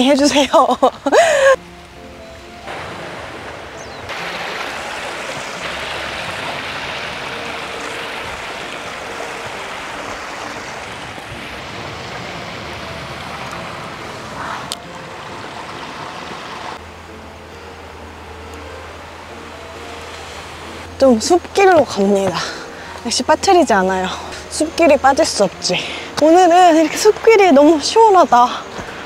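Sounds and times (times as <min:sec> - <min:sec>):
waves washing on rocky shore: 0:02.7 - 0:14.4.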